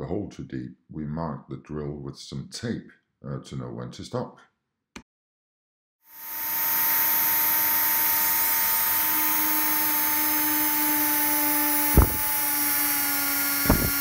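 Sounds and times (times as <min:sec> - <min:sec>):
rotary tool drilling wood: 0:06.1 - 0:14.0
brief knock: 0:12.0 - 0:12.2.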